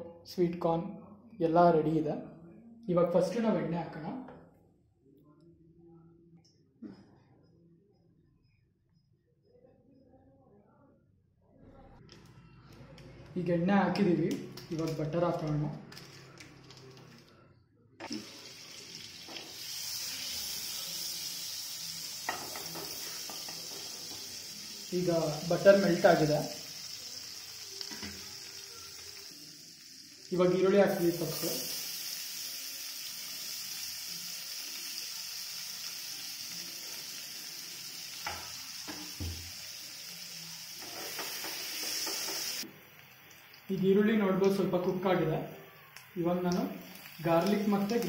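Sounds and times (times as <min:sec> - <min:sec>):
butter sizzling in frying pan: 0:18.0 - 0:48.0
spatula stirring onions: 0:20.6 - 0:28.5, 0:40.7 - 0:45.1.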